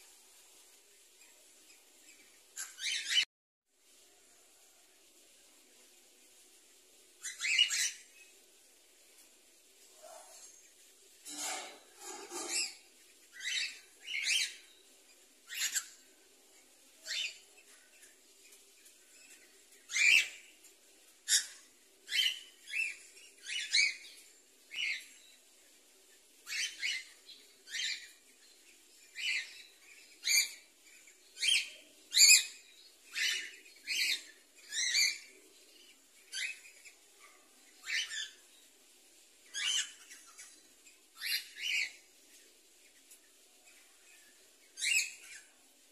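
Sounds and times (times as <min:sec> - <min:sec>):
cockatiels chirping: 0:15.5 - 0:16.0, 0:19.2 - 0:20.5, 0:21.2 - 0:25.1, 0:29.2 - 0:35.4, 0:36.3 - 0:37.0, 0:37.8 - 0:38.4, 0:39.5 - 0:42.1, 0:44.8 - 0:45.5.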